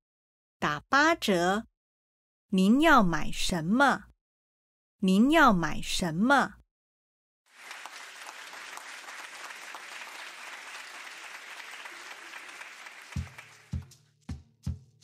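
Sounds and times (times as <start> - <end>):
small crowd applauding: 7.5 - 14.0.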